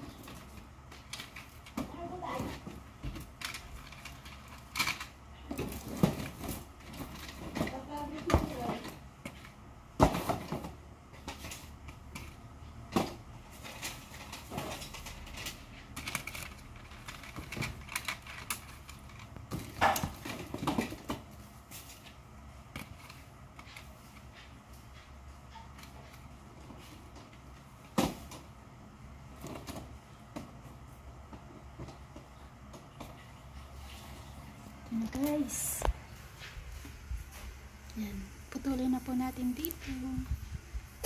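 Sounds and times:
plastic hangers clattering: 0.0 - 9.5, 10.3 - 21.3.

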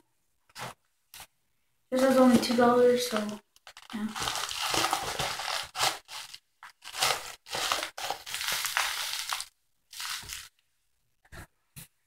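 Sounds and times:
bubble wrap crinkling: 2.0 - 10.6.

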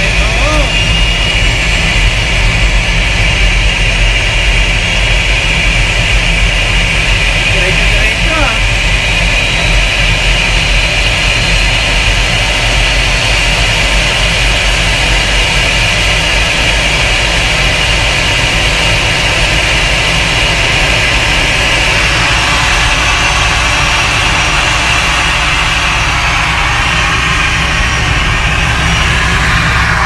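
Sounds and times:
jet-like hiss and whine: 0.0 - 30.0
tug engine rumbling under load: 0.0 - 30.0.

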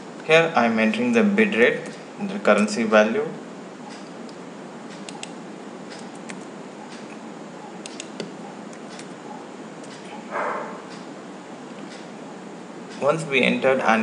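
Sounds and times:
low hiss: 0.0 - 14.0
keyboard and mouse clicks: 3.8 - 9.2, 9.8 - 10.2.

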